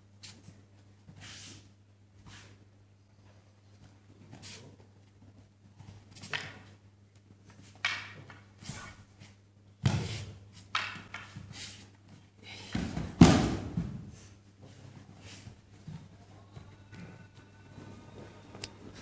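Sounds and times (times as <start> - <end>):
wooden swords knocking: 7.7 - 8.5, 10.6 - 11.4
body slapping onto mats: 12.7 - 14.1.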